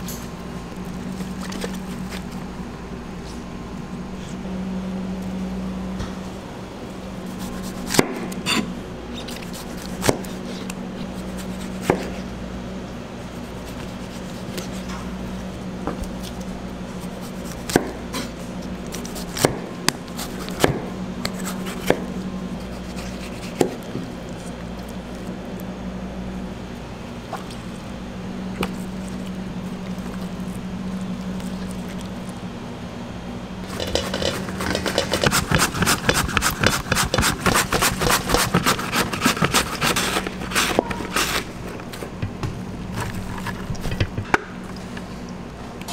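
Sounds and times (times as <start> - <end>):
steady low hum: 0.0 - 45.9
knife slicing tomatoes: 7.3 - 12.2, 17.0 - 24.0, 33.7 - 41.5
onion rasping on mandoline slicer: 33.6 - 41.6.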